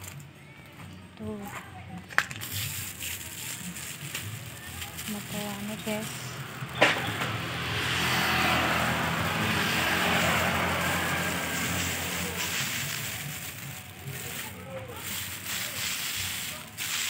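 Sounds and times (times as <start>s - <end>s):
motor vehicle passing by: 4.0s - 17.0s.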